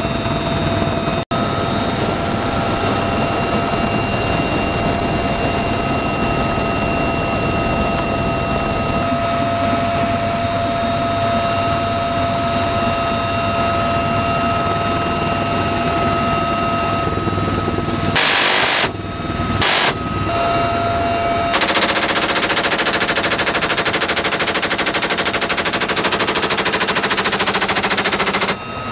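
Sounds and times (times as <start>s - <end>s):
helicopter cabin noise: 0.0s - 28.9s
high steady tones: 18.0s - 28.9s
machine gun fire: 18.2s - 19.0s, 19.6s - 20.1s, 21.5s - 28.6s.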